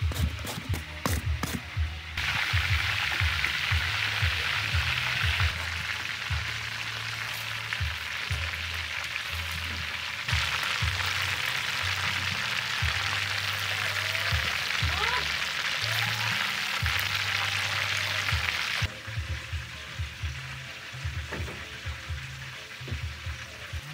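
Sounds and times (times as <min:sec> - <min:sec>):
oil bubbling and sizzling: 0:00.0 - 0:23.9.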